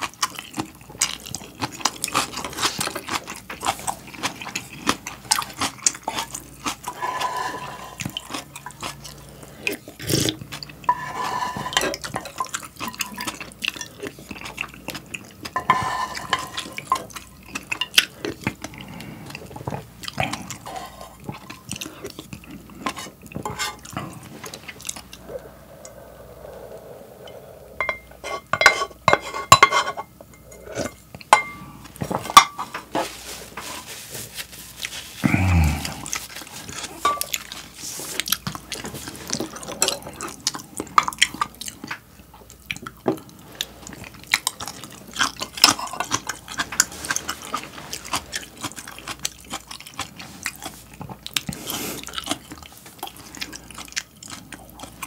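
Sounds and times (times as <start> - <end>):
chewing: 0.0 - 28.9, 30.4 - 55.0
slurping broth: 5.4 - 13.5, 18.7 - 29.4
pot and utensils clinking: 15.5 - 18.0, 22.9 - 24.1, 27.8 - 33.1, 37.0 - 37.5.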